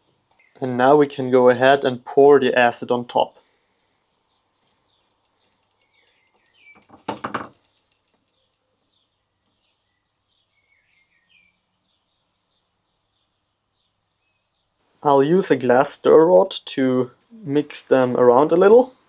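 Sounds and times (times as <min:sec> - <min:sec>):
small birds chirping: 0:00.0 - 0:01.2, 0:03.2 - 0:15.2
loud knock or clatter: 0:06.8 - 0:07.6.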